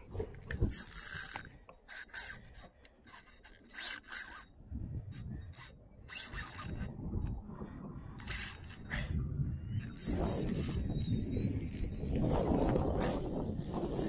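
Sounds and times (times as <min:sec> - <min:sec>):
fishing reel ratcheting whir: 0:00.0 - 0:07.4, 0:08.0 - 0:08.9, 0:09.8 - 0:10.9, 0:12.4 - 0:14.0.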